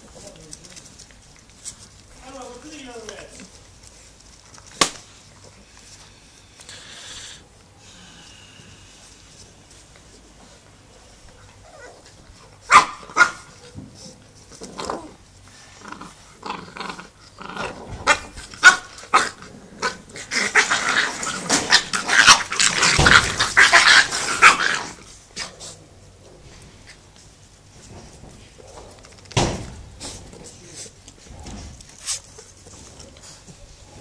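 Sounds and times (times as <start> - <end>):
puppies barking: 11.4 - 13.8, 18.0 - 25.0
puppies growling: 14.0 - 26.4, 30.0 - 34.0.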